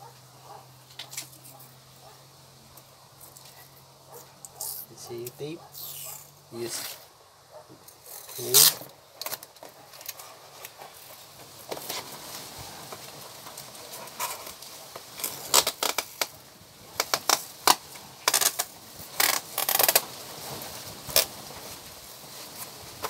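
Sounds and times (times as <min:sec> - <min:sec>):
adhesive tape tearing: 0:04.4 - 0:07.1, 0:08.0 - 0:10.2, 0:15.2 - 0:16.4, 0:17.0 - 0:20.0.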